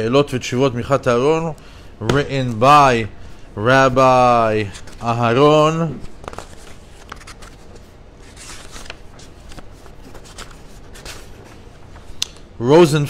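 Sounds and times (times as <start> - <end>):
paper rustling: 4.1 - 12.2.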